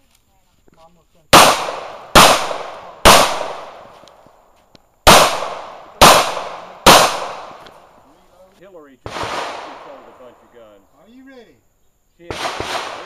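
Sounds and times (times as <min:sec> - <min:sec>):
pistol shots with echo: 0:01.3 - 0:03.9, 0:05.0 - 0:07.8, 0:09.1 - 0:10.4, 0:12.3 - 0:13.0.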